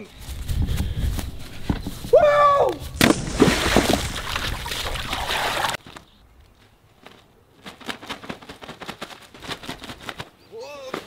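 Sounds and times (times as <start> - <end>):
water splashing: 3.0 - 5.8.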